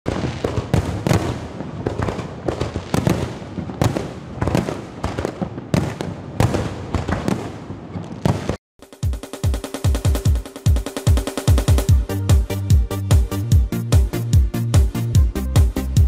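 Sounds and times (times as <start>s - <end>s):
fireworks bangs: 0.1s - 8.6s
fireworks crackling: 0.1s - 8.6s.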